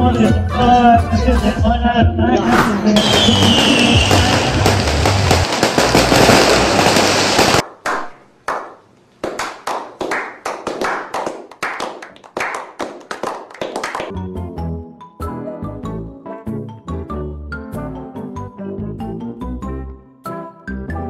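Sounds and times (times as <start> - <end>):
low music: 0.0 - 6.6, 14.1 - 21.0
loud dense noise: 2.8 - 7.6.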